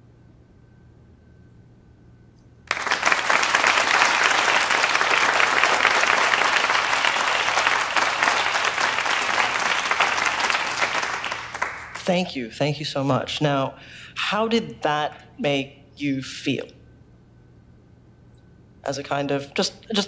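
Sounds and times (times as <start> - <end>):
audience applause: 2.7 - 12.1.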